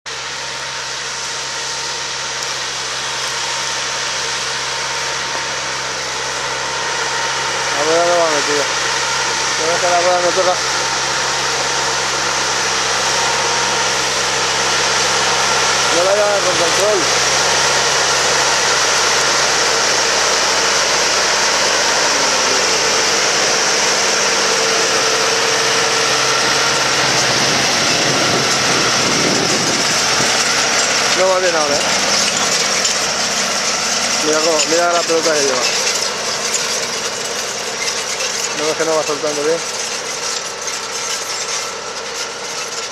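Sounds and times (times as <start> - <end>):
tractor engine under load: 0.0 - 42.9.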